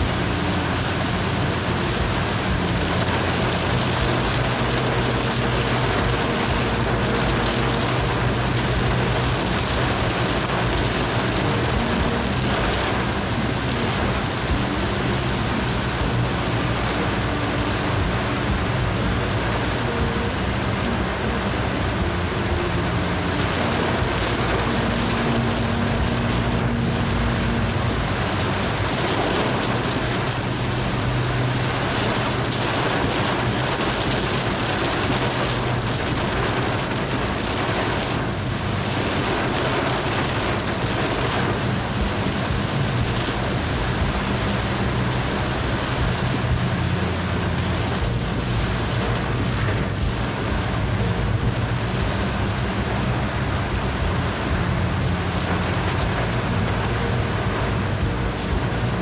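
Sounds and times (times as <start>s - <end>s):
low hum shifting in pitch: 0.0s - 33.7s
heavy rain on car windscreen: 0.0s - 59.0s.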